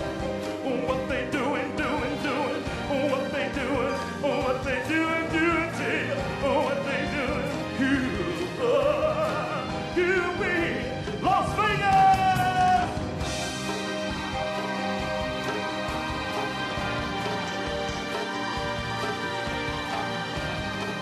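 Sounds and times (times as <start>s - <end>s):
live band playing: 0.0s - 21.0s
person singing with vibrato: 0.4s - 13.0s.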